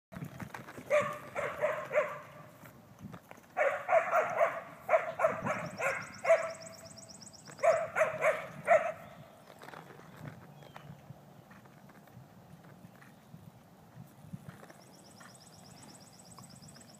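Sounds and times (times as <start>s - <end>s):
dog barking: 0.9s - 2.5s, 3.6s - 6.7s, 7.6s - 9.2s.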